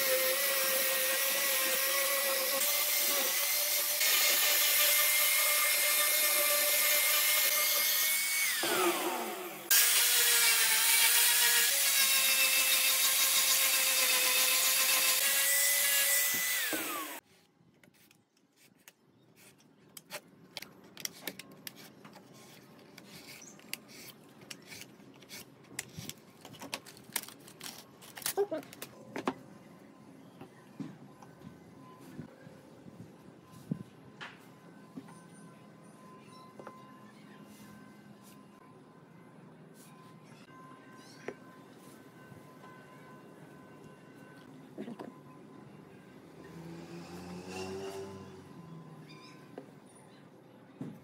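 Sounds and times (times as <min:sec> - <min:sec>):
angle grinder sanding wood: 0:00.0 - 0:17.2.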